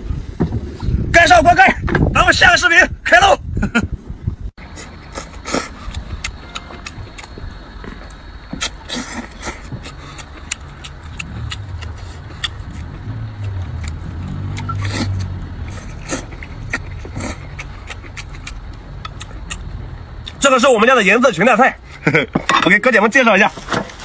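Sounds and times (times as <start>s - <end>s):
wet chewing and smacking: 4.8s - 20.5s.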